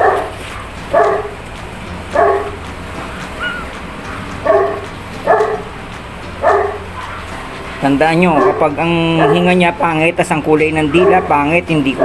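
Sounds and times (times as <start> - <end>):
dog barking: 0.0 - 1.4, 2.1 - 5.7, 6.4 - 7.5, 8.3 - 9.6, 10.8 - 12.0
steady low hum: 0.0 - 10.2.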